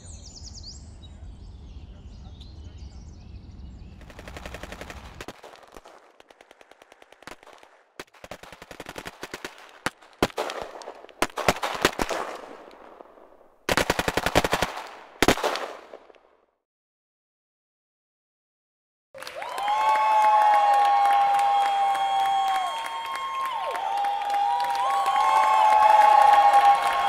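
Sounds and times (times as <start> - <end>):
machine-gun fire bursts: 4.0 - 16.2
single gunshots: 4.0 - 16.4.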